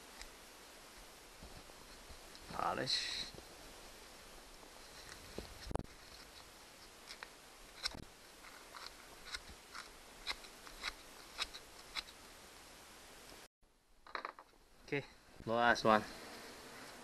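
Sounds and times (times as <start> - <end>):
small clicks and crinkles: 4.8 - 12.2.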